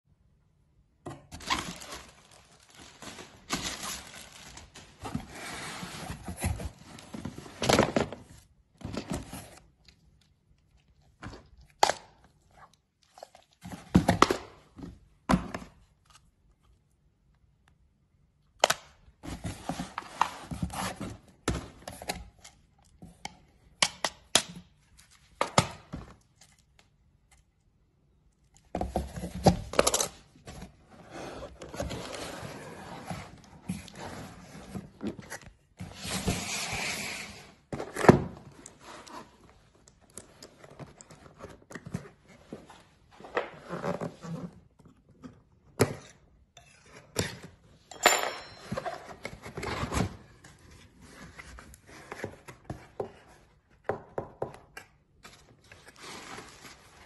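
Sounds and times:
cardboard packaging rustling: 1.3 - 9.9, 28.6 - 45.2, 55.2 - 57.0.

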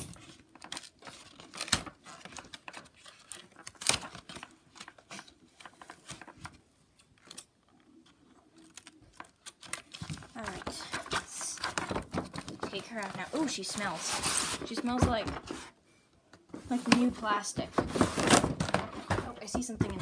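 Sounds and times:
packaging crinkling and tearing: 0.0 - 14.6.

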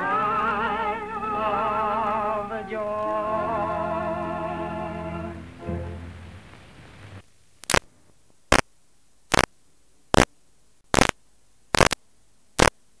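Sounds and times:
faint hiss: 0.0 - 13.0
static bursts: 0.0 - 13.0.

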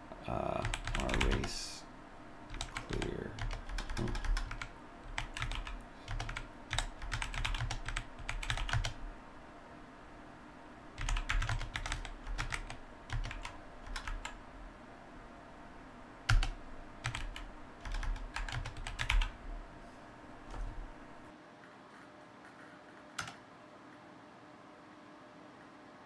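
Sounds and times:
computer keyboard typing: 0.6 - 1.6, 2.5 - 9.0, 11.0 - 14.4, 16.3 - 19.4, 21.9 - 23.4.

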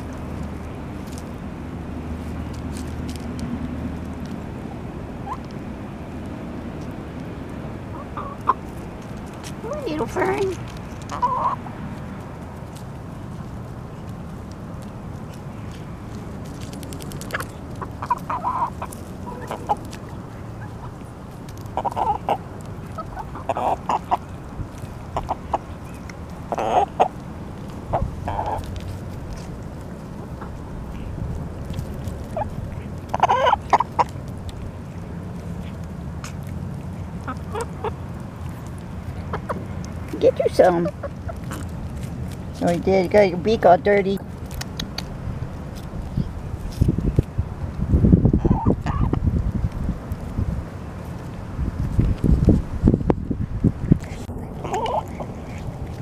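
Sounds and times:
steady low rumble: 0.0 - 56.0
hens pecking clicks: 5.3 - 43.2, 44.0 - 47.8, 53.9 - 56.0.

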